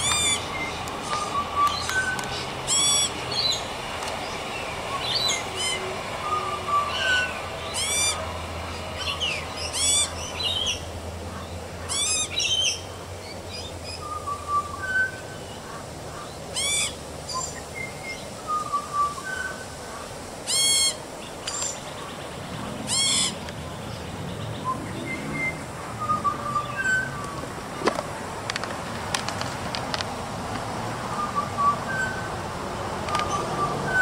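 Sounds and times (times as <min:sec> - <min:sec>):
young magpie squawking: 0:01.2 - 0:03.5, 0:06.9 - 0:08.2, 0:09.7 - 0:10.1, 0:10.7 - 0:12.8, 0:15.7 - 0:17.0, 0:20.0 - 0:21.0, 0:22.9 - 0:23.4.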